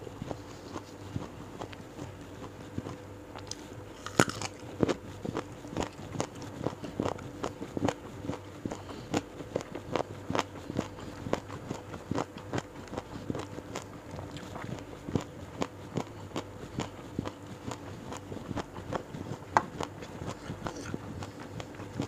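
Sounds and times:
person chewing crunchy food: 2.8 - 22.0.

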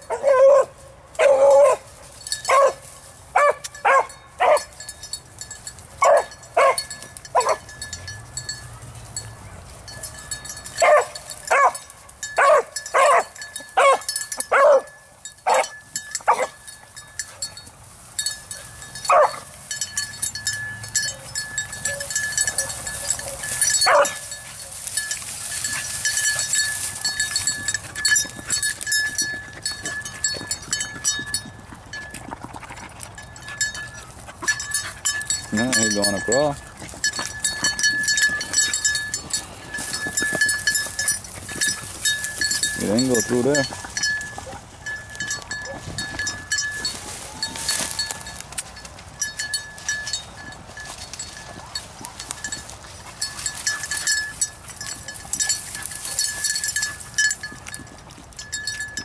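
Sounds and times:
dog baying and barking: 0.0 - 2.8, 3.4 - 4.7, 6.0 - 7.7, 10.8 - 16.6, 18.6 - 19.5, 21.0 - 24.9, 42.8 - 46.0.

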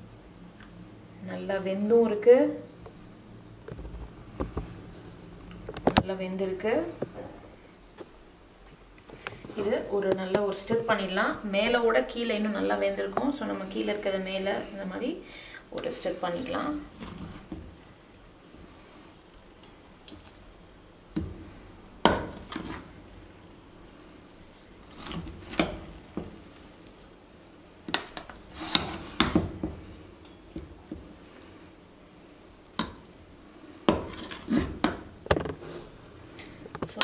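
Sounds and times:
rice rustling: 16.3 - 36.6
ladle scraping cooking pot: 28.0 - 29.4, 33.9 - 35.0.

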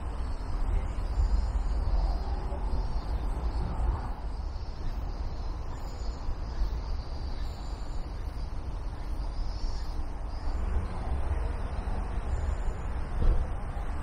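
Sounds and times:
faint high-pitched chirps: 0.2 - 10.6.

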